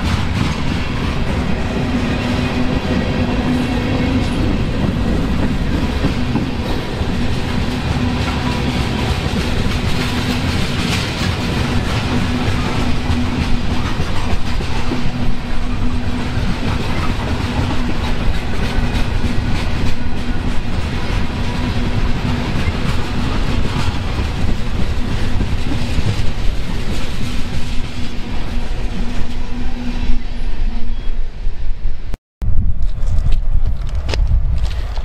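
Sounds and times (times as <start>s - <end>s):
freight train rolling past: 0.0s - 32.2s
wheels clicking over rail joints: 3.5s - 28.0s.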